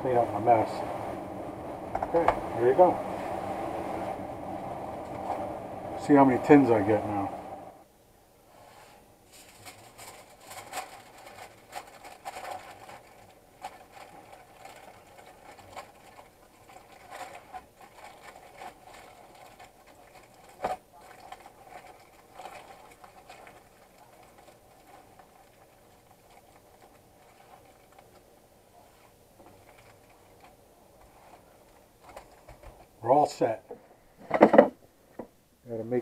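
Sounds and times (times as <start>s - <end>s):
aluminium foil crinkling: 9.3s - 33.0s.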